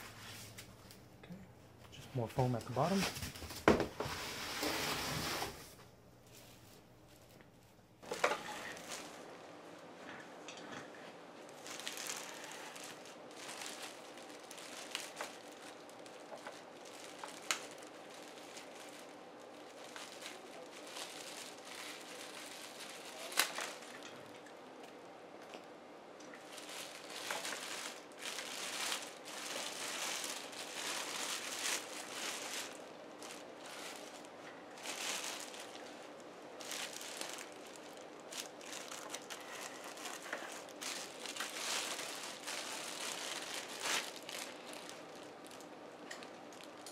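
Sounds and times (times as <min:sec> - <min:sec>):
faint steady hum: 0:00.0 - 0:46.9
plastic bag crinkling: 0:08.0 - 0:09.4, 0:11.5 - 0:25.6, 0:26.2 - 0:46.9.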